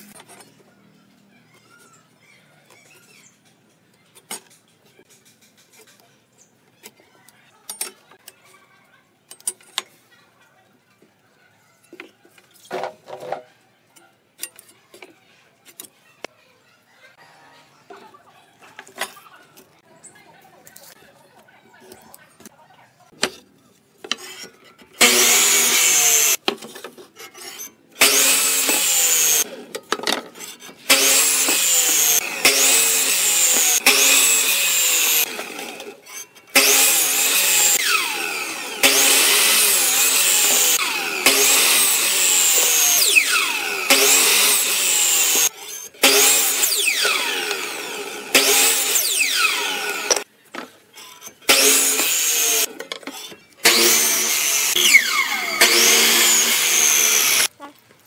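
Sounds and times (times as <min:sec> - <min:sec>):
miter saw cutting wood: 0:24.2 - 0:26.4, 0:27.4 - 0:29.8, 0:30.4 - 0:50.3, 0:51.0 - 0:57.5.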